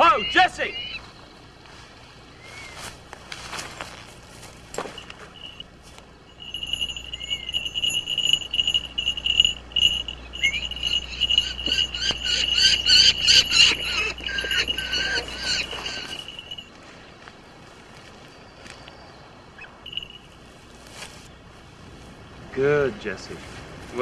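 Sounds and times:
falcon rapid sharp cries: 0.0 - 1.0, 9.2 - 16.6
falcon shrill cry: 0.0 - 1.1, 7.1 - 16.7.

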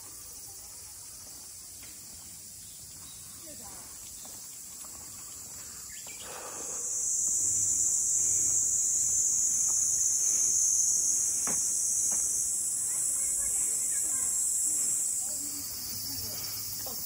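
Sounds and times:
cicadas droning: 0.0 - 17.0.

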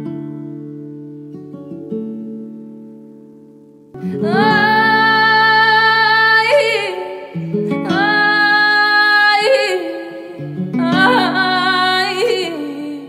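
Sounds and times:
guitar: 0.0 - 13.0
woman singing: 4.0 - 13.0.

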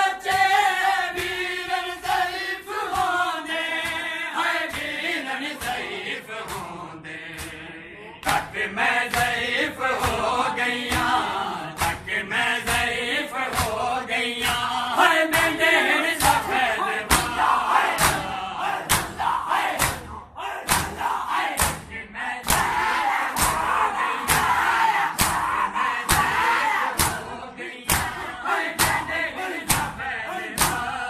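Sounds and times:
men chanting and shouting: 0.0 - 31.0
hands slapping bare chests: 2.9 - 3.2, 4.7 - 5.0, 5.6 - 6.7, 7.3 - 7.6, 8.2 - 8.5, 9.1 - 9.4, 10.0 - 10.3, 10.9 - 12.1, 12.7 - 15.6, 16.2 - 16.5, 17.1 - 27.3, 27.9 - 28.2, 28.8 - 30.0, 30.6 - 30.9.

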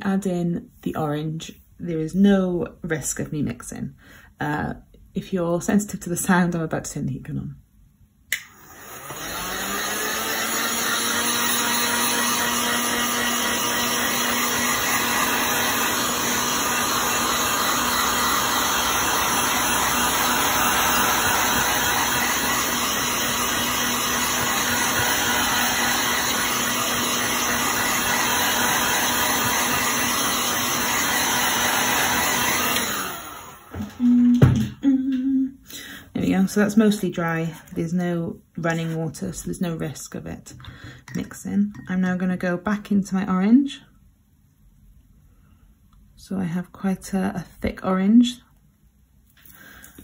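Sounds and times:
heat gun blowing air: 8.3 - 34.0.

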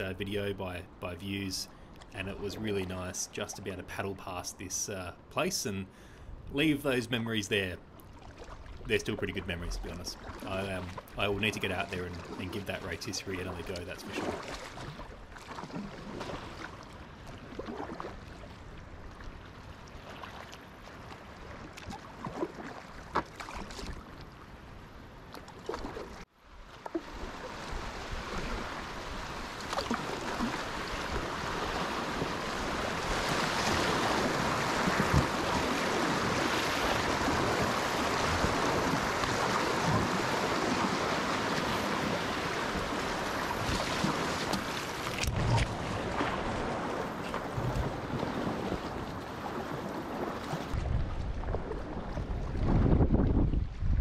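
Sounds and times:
water lapping and dripping: 7.9 - 24.5, 25.3 - 52.7
paddle splashes: 8.0 - 24.5, 25.3 - 53.9
wind on microphone: 30.3 - 54.0.

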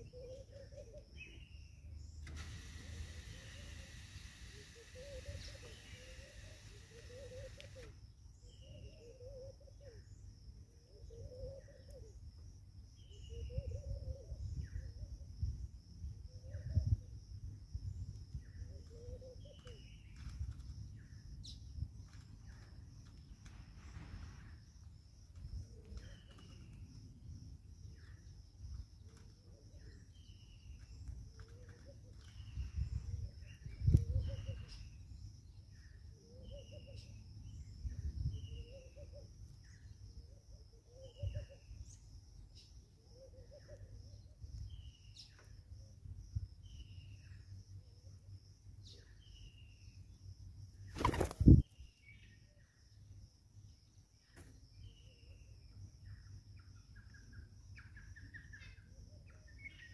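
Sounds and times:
birds chirping: 0.0 - 9.4
lower bird calls: 0.0 - 12.3, 13.0 - 15.2, 17.8 - 27.1, 27.9 - 45.6.

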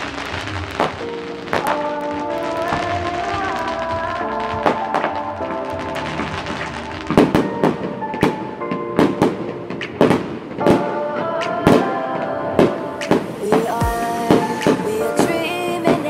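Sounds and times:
fireworks bangs: 0.0 - 10.9
music playing: 0.0 - 16.0.

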